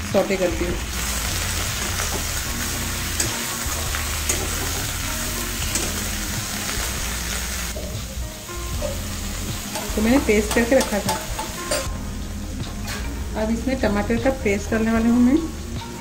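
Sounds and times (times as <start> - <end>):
vegetables sizzling in oil: 0.0 - 16.0
metal spatula scraping a wok: 1.6 - 6.2.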